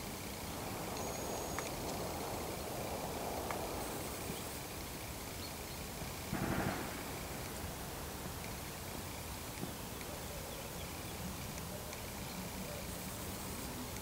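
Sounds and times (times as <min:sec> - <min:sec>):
steady rushing background noise: 0:00.0 - 0:14.0
low-pitched thud: 0:06.3 - 0:07.4.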